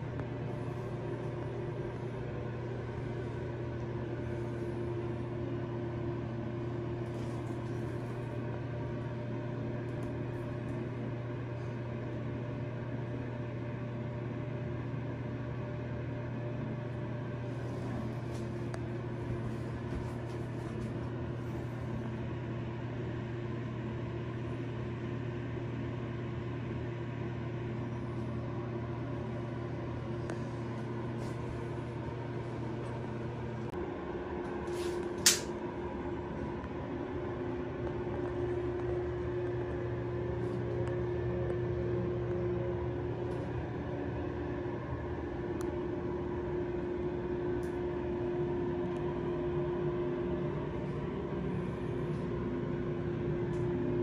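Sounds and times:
low mechanical hum: 0:00.0 - 0:54.0.

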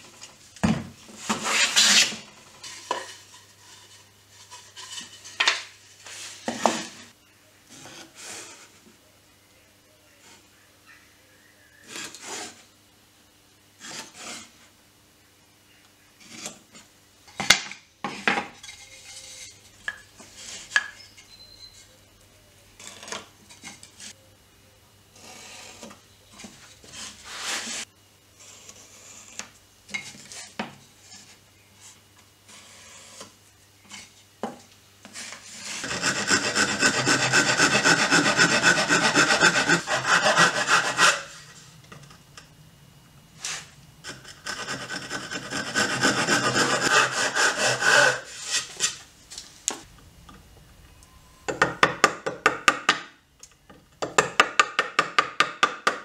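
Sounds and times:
handsaw cutting wood: 0:35.6 - 0:41.4, 0:44.0 - 0:49.0
wooden boards and tools knocking: 0:51.4 - 0:56.0.

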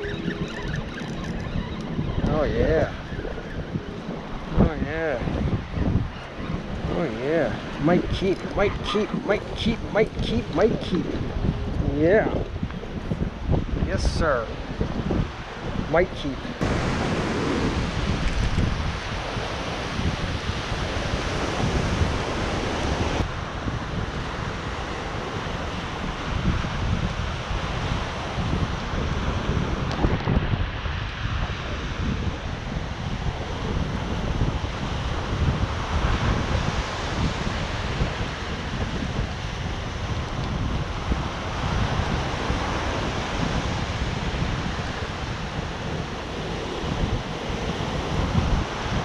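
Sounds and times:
wind buffeting microphone: 0:00.0 - 0:49.0
surf breaking on beach: 0:16.5 - 0:49.0.

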